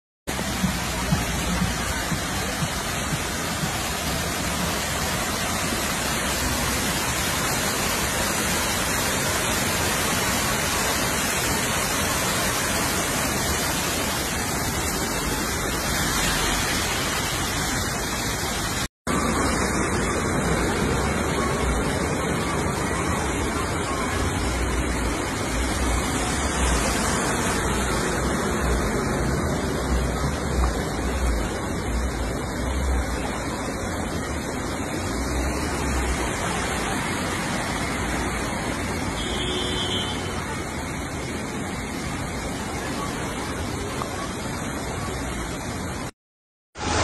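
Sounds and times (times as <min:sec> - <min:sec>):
floodwater rushing down stairs: 0:00.3 - 0:46.1
torrential rain: 0:00.3 - 0:46.2, 0:46.8 - 0:47.0.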